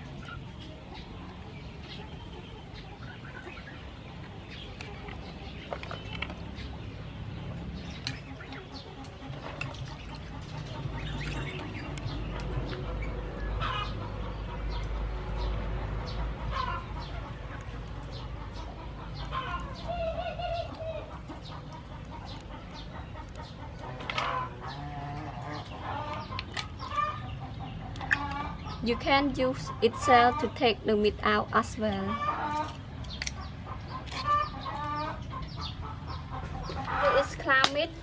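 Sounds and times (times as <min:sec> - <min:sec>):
chickens clucking: 0:00.0 - 0:38.0
mussel shells clicking and splashing: 0:25.5 - 0:29.1, 0:32.3 - 0:35.0.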